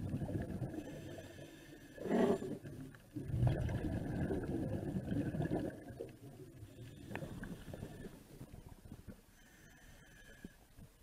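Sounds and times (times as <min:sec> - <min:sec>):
underwater rumble of water: 0:00.0 - 0:09.3.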